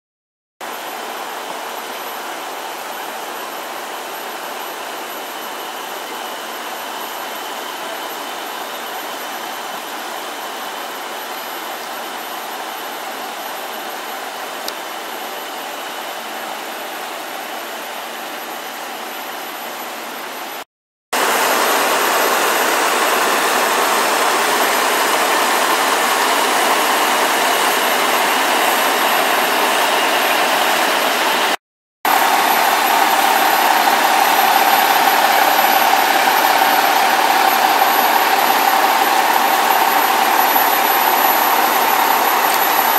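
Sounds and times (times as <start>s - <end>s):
fire truck engines idling: 21.2s - 42.9s.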